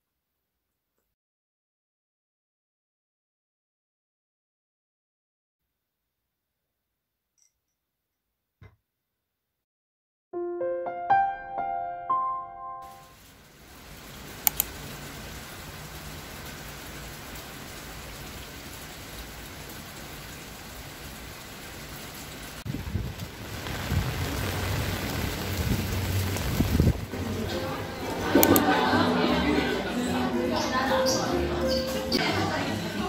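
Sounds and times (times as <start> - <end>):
heavy rain on paving: 13.0 - 33.0
sharp click: 14.4 - 14.7
deep rumble: 22.7 - 27.2.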